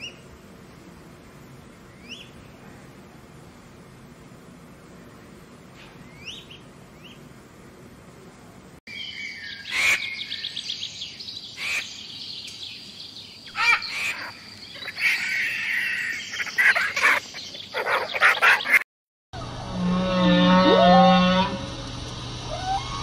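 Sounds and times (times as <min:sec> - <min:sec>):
songbird chirps: 0:00.0 - 0:02.6, 0:04.9 - 0:07.3, 0:08.9 - 0:18.8
high bird trill: 0:08.9 - 0:18.8.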